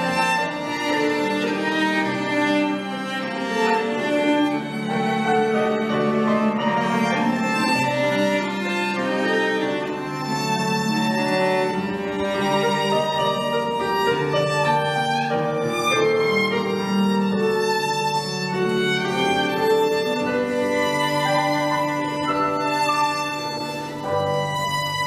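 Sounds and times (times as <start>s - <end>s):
cello playing: 0.0s - 25.0s
violin playing: 0.0s - 25.0s.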